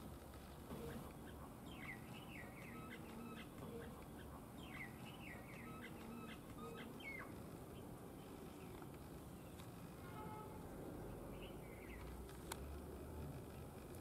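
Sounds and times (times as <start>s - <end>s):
small bird chirping: 0.8s - 9.7s.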